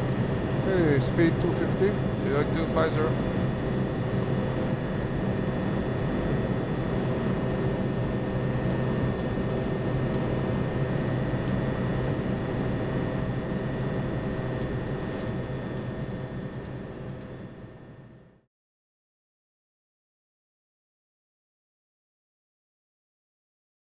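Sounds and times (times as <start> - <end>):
constant hums: 0.0 - 18.4
jet engines droning: 0.0 - 18.4.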